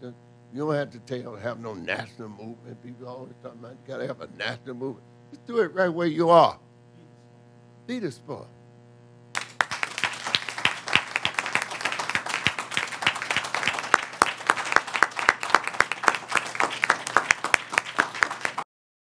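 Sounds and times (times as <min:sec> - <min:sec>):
audience applauding: 0:09.4 - 0:18.7.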